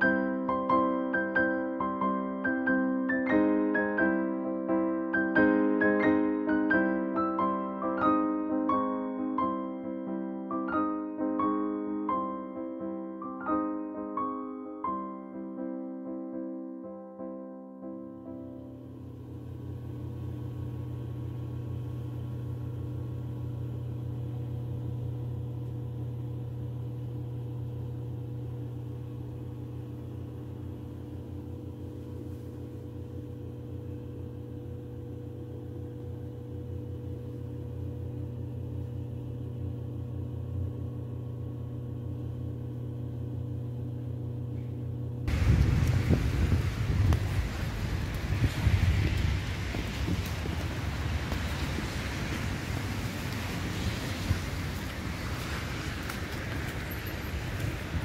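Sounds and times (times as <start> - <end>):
low machine hum: 0.0 - 15.4, 17.9 - 58.0.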